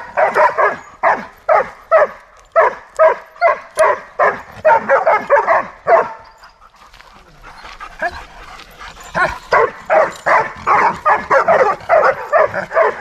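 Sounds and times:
dog barking: 0:00.0 - 0:06.3, 0:09.2 - 0:13.0.

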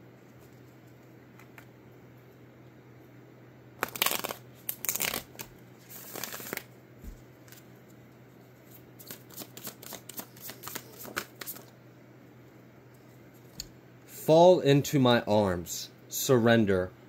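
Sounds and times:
cards being shuffled: 0:03.8 - 0:07.7, 0:08.6 - 0:11.7.

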